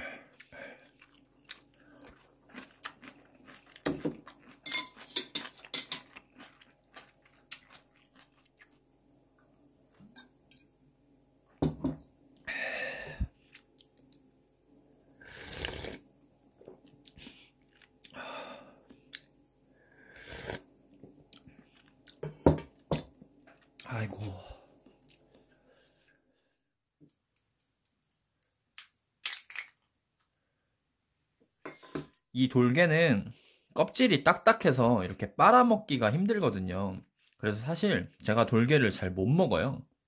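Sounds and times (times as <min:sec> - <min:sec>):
chewing: 0:00.3 - 0:08.8
crab shell crunching and cracking: 0:28.8 - 0:29.8.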